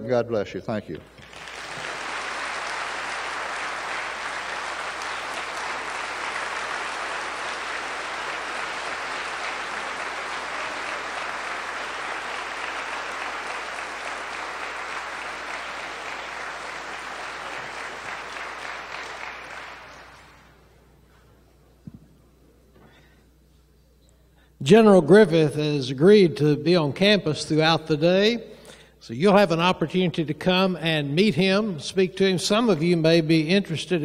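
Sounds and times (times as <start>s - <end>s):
audience applauding: 1.1s - 20.6s.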